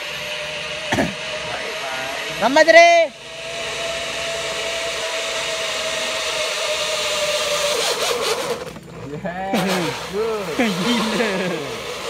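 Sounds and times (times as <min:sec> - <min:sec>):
zipline trolley whirring on cable: 0:00.0 - 0:12.0.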